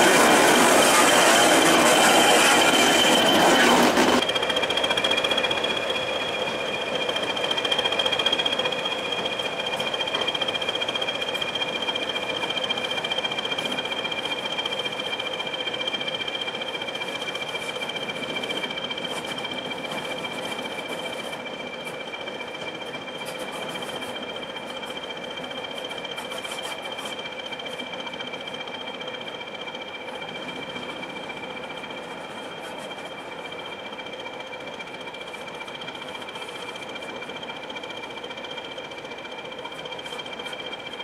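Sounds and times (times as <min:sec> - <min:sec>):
turbocharger whistle: 0:00.0 - 0:07.6
diesel locomotive engine: 0:00.0 - 0:41.0.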